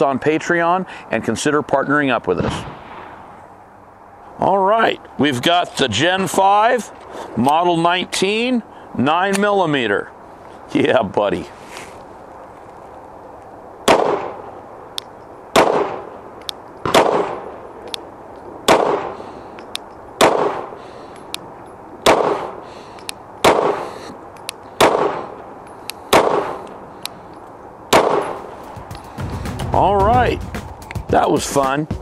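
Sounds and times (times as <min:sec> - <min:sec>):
pistol shots: 0:13.8 - 0:14.4, 0:15.5 - 0:16.1, 0:16.8 - 0:17.5, 0:18.6 - 0:19.2, 0:20.2 - 0:20.8, 0:22.0 - 0:22.6, 0:23.4 - 0:23.9, 0:24.8 - 0:25.3, 0:26.1 - 0:26.6, 0:27.9 - 0:28.5
faint small clicks: 0:23.0 - 0:23.2.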